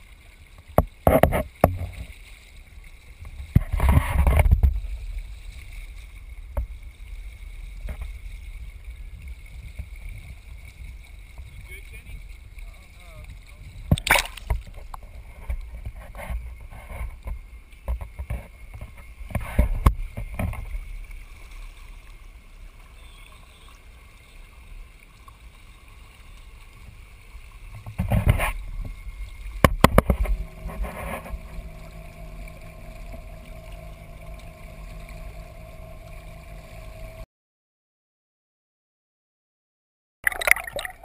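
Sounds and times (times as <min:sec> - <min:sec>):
water sloshing against boat: 0:00.0 - 0:37.2
steady low hum: 0:28.5 - 0:37.2.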